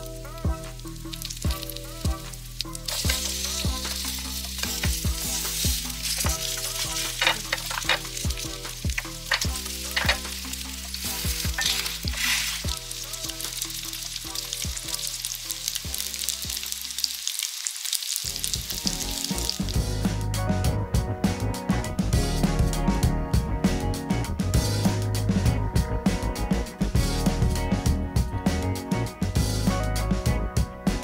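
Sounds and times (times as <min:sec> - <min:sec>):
pancakes sizzling in oil: 0:00.0 - 0:20.0.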